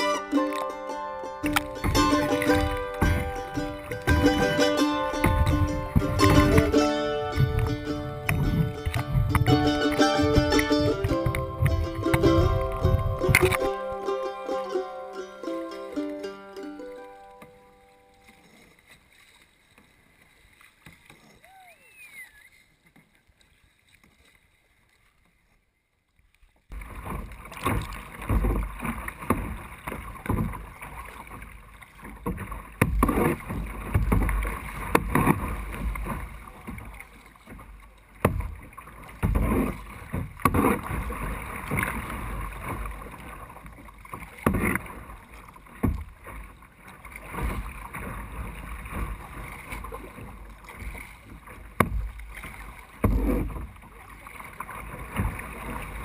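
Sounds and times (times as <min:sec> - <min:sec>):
water splashing against kayak: 0:00.0 - 0:56.0
wind rumbling on microphone: 0:05.2 - 0:13.7.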